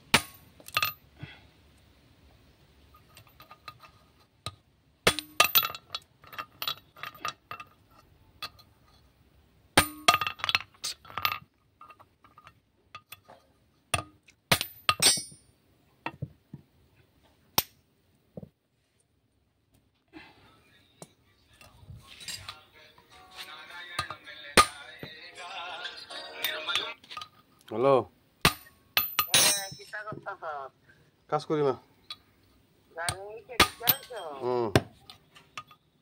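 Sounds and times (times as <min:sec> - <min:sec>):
metal parts clinking when set down: 0:00.6 - 0:01.0, 0:05.1 - 0:08.7, 0:09.8 - 0:13.5, 0:14.6 - 0:15.4, 0:21.6 - 0:22.6, 0:28.5 - 0:30.2.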